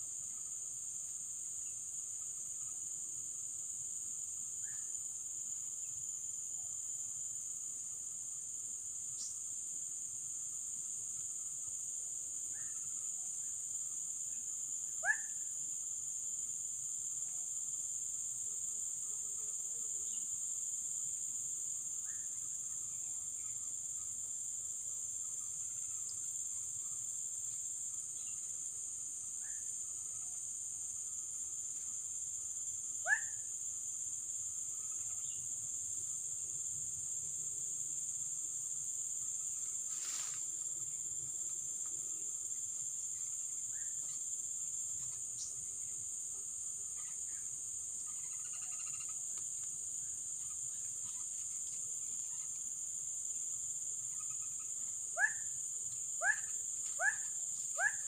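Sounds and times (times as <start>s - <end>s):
high-pitched insect drone: 46.8s - 53.4s, 54.0s - 58.0s.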